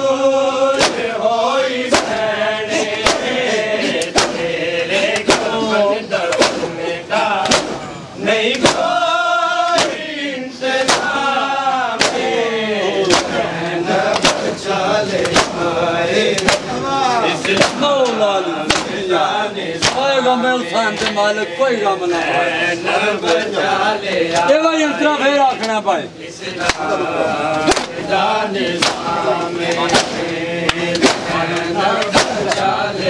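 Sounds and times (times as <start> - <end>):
men chanting a lament: 0.0 - 33.0
chest-beating strikes: 1.9 - 4.5, 6.3 - 6.8, 7.4 - 8.9, 10.8 - 11.3.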